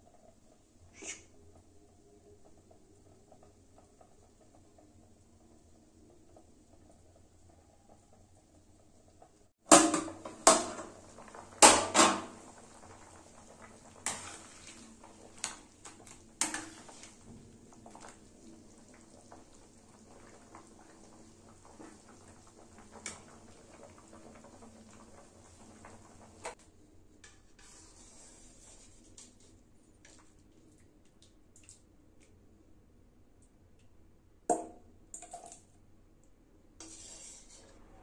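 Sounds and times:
metal spatula scraping pan: 14.0 - 14.8, 16.4 - 17.2, 27.2 - 29.5, 36.8 - 38.0.

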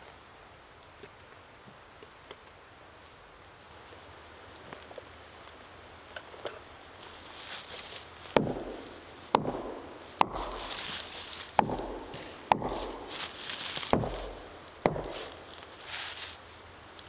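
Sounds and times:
hammer blows on tree trunk: 8.4 - 15.4.

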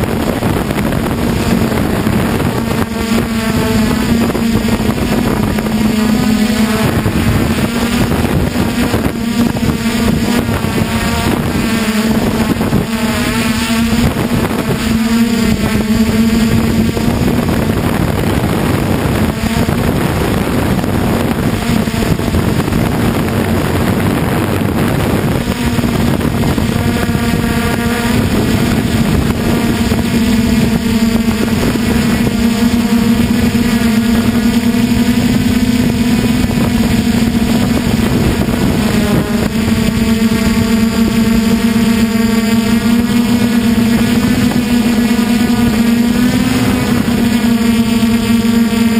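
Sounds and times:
rushing air: 0.0 - 34.4
drone motors buzzing: 0.0 - 48.9.

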